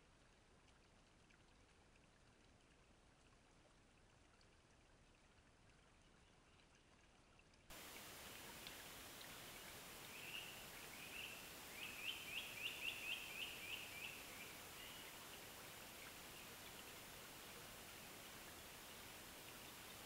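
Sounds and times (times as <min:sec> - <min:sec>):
microphone hiss: 0:07.7 - 0:20.0
bird singing faintly: 0:08.0 - 0:20.0.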